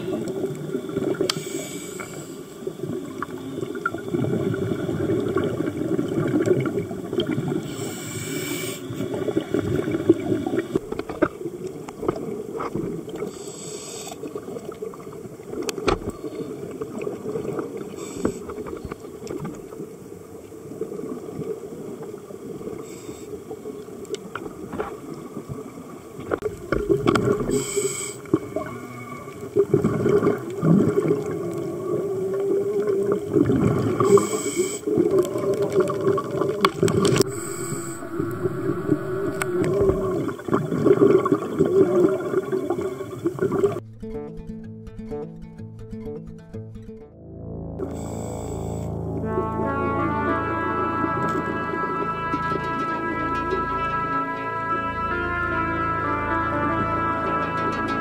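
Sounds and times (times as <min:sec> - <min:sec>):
exhaled bubbles gurgling: 0:00.0 - 0:13.4, 0:14.2 - 0:43.8
regulator hissing: 0:37.2 - 0:40.4.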